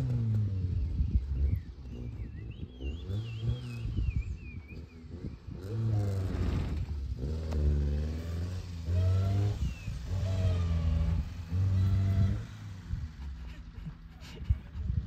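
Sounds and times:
car engine revving hard: 0:00.0 - 0:04.0, 0:04.8 - 0:13.4.

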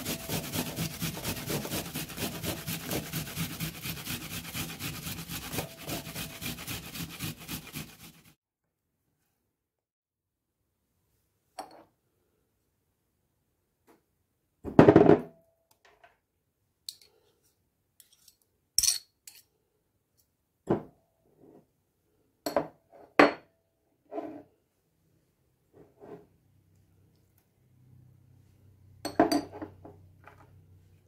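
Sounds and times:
knife scraping ceramic dishes: 0:18.0 - 0:19.5.

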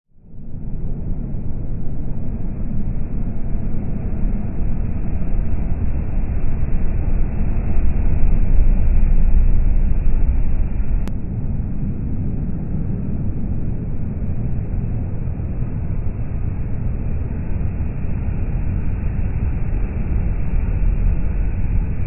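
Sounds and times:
lorry engine and tyres rumbling: 0:04.4 - 0:11.3.

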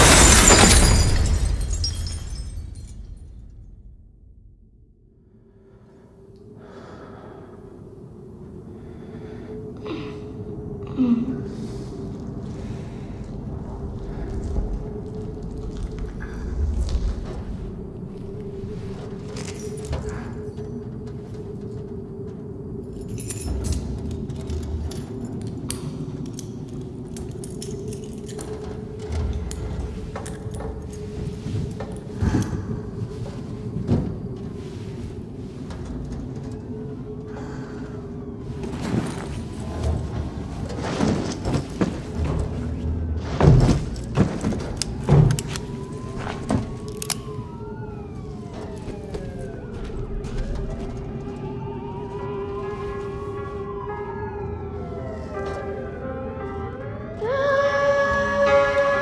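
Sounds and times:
metal and glass debris clinking: 0:00.0 - 0:03.8, 0:22.9 - 0:31.1
police sirens: 0:44.2 - 0:59.0.

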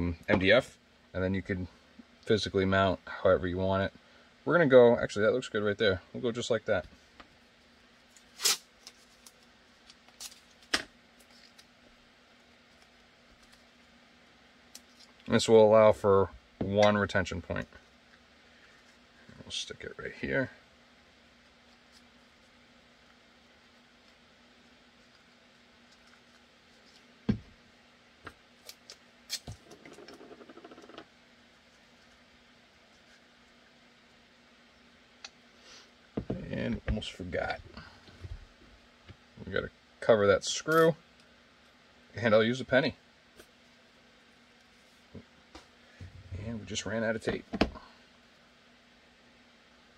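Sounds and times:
faint steady hum: 0:00.0 - 0:49.9
tape tearing: 0:08.1 - 0:09.4, 0:28.6 - 0:29.6.

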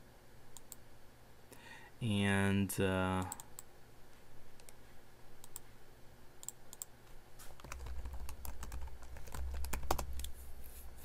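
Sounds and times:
keyboard keys clicking: 0:07.6 - 0:10.3.

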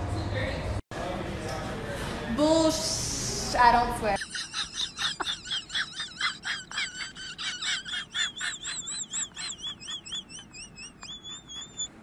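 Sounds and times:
high-pitched squeaky laugh: 0:04.2 - 0:12.0.

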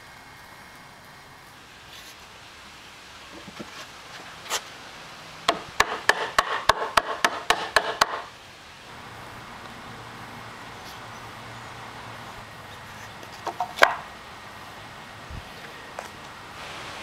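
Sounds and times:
rubber mallet knocking wood: 0:05.5 - 0:08.3.

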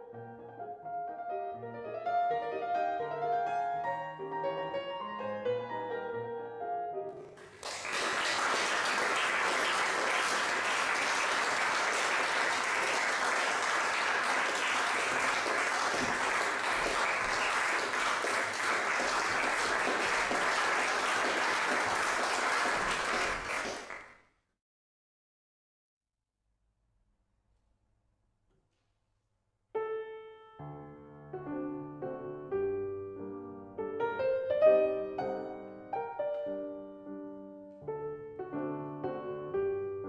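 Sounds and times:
piano notes: 0:00.0 - 0:07.6, 0:29.8 - 0:40.0
audience applauding: 0:07.2 - 0:24.2.

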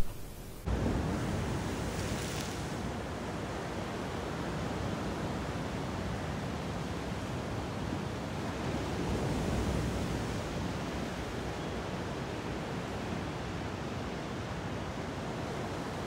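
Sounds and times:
ocean surf on rocky shore: 0:00.0 - 0:12.1.

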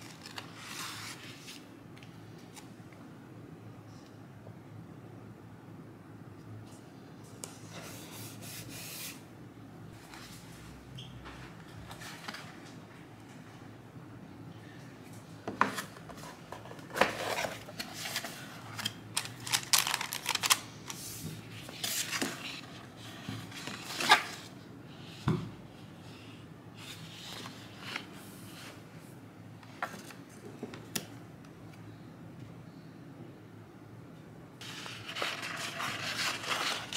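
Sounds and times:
paper rustling: 0:00.0 - 0:01.7, 0:15.6 - 0:21.0, 0:34.6 - 0:36.9.

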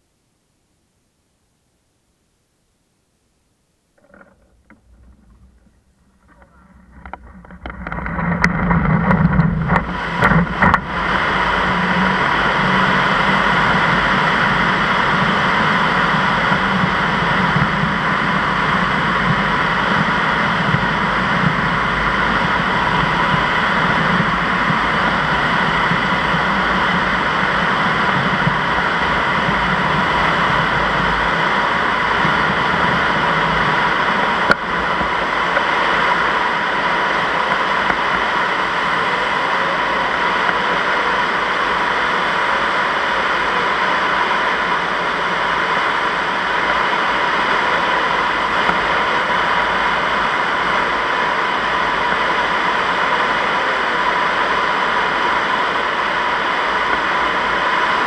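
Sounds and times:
air rushing past glider: 0:04.7 - 0:58.0.

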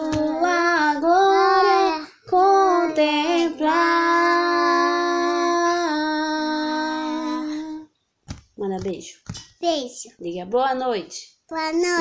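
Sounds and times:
woman singing hymn: 0:00.0 - 0:07.8
girl singing hymn: 0:00.0 - 0:08.0.

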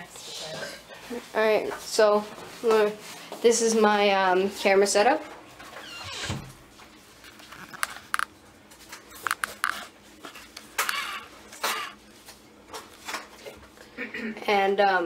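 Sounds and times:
camera strap rustling: 0:07.2 - 0:08.3, 0:09.1 - 0:09.8
camera handling clicks: 0:09.2 - 0:09.8.

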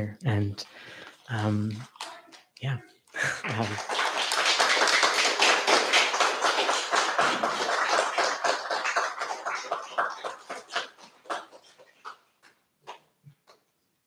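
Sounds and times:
audience applauding: 0:03.2 - 0:12.2.

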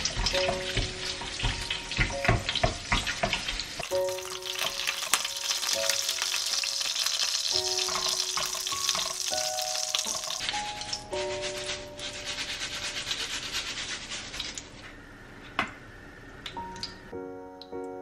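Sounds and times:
pan and utensils clattering: 0:00.0 - 0:13.7
hot oil sizzling: 0:00.0 - 0:14.8.

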